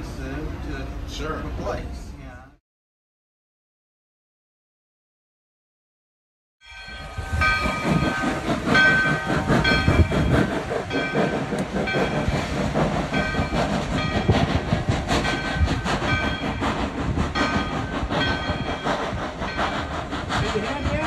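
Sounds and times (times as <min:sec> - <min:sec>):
locomotive bell ringing: 0:06.6 - 0:12.4, 0:13.0 - 0:14.5, 0:15.2 - 0:16.8, 0:17.4 - 0:19.9
steam locomotive exhaust: 0:06.8 - 0:21.0.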